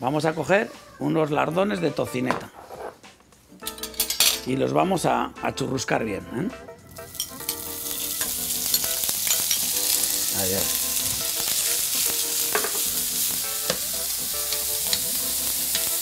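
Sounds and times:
bacon sizzling in oil: 6.9s - 16.0s
metal spoon stirring in pan: 7.1s - 10.0s.

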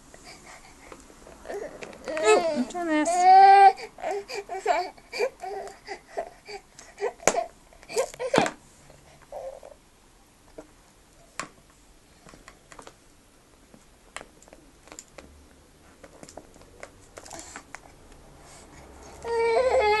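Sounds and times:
plastic rattle and toys clicking: 16.0s - 17.8s.

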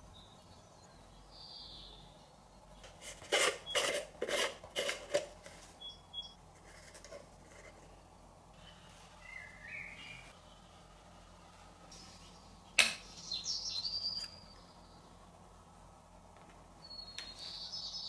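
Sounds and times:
hands scraping plastic jar: 2.8s - 5.7s.

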